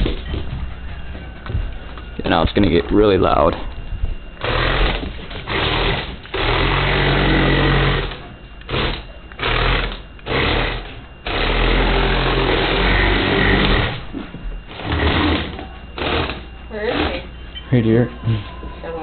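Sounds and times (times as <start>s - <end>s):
toy electric motors whirring: 4.4s - 14.1s, 14.7s - 17.3s.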